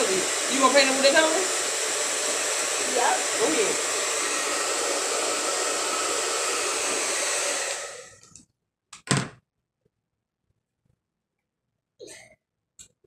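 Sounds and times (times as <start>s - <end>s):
hair dryer blowing: 0.0s - 8.2s.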